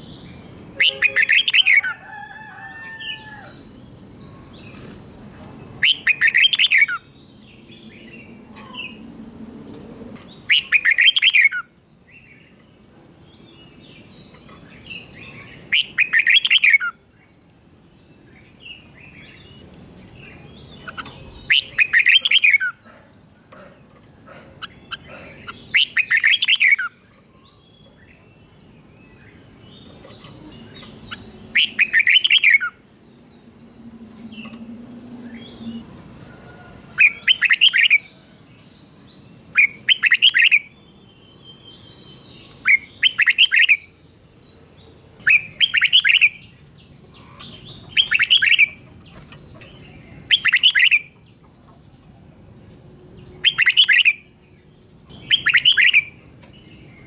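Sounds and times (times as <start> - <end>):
bulbul singing: 0.0 - 1.9, 10.3 - 35.9, 37.0 - 52.0, 53.2 - 57.0.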